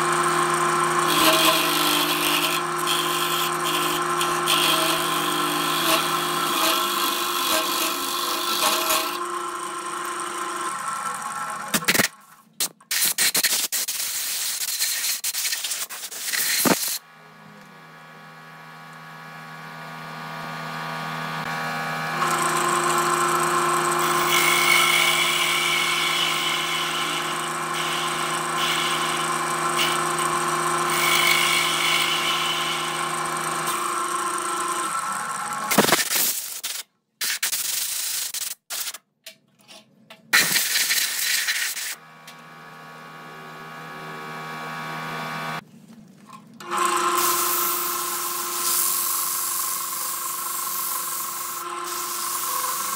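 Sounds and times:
lathe motor hum: 0:00.0 - 0:11.8, 0:18.1 - 0:35.7, 0:46.6 - 0:52.9
turning tool scraping wood: 0:01.0 - 0:09.2.

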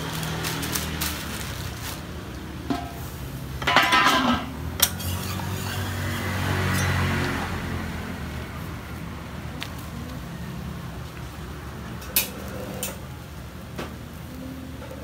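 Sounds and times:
metal spatula scraping griddle: 0:02.7 - 0:07.1.

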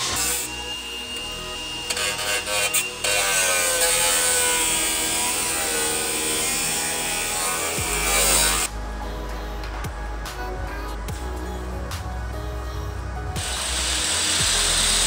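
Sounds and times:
angle grinder on sheet steel: 0:00.0 - 0:08.7, 0:13.4 - 0:15.0.

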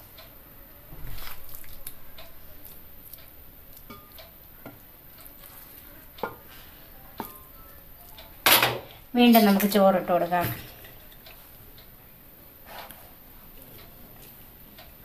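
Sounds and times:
wooden spoon scraping in pot: 0:12.6 - 0:13.2.

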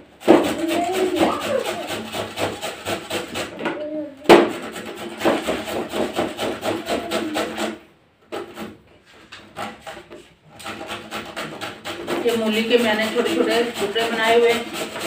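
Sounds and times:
radish grating on metal grater: 0:00.2 - 0:03.6, 0:04.4 - 0:15.0.

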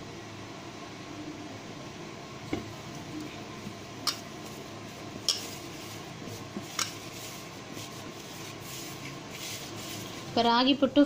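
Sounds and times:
hand mixing flour and water: 0:04.1 - 0:10.9.

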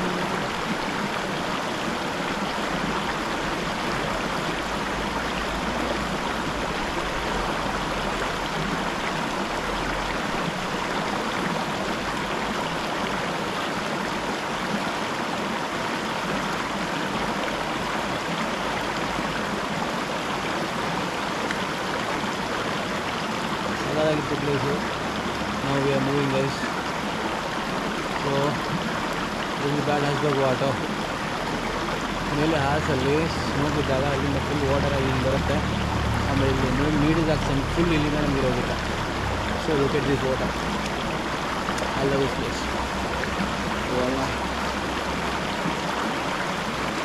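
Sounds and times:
stream running over stones: 0:00.0 - 0:47.0.

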